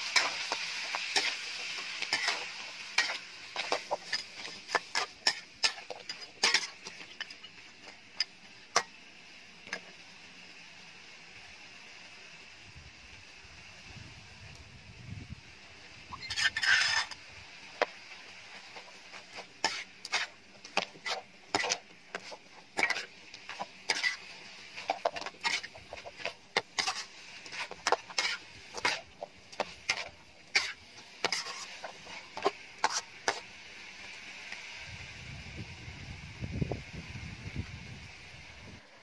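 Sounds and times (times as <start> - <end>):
metal spatula scraping a wok: 0.0 - 9.0, 16.1 - 33.6.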